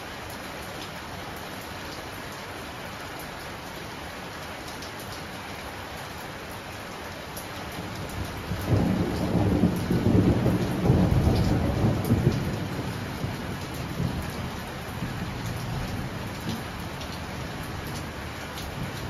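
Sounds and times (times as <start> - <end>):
heavy rain hissing: 7.6 - 19.0
thunder rolling: 8.7 - 14.2.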